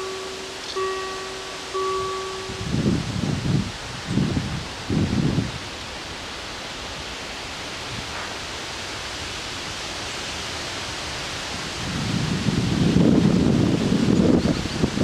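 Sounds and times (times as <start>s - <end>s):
wind through trees: 0.0s - 15.0s
wind buffeting microphone: 1.2s - 6.3s, 11.4s - 15.0s.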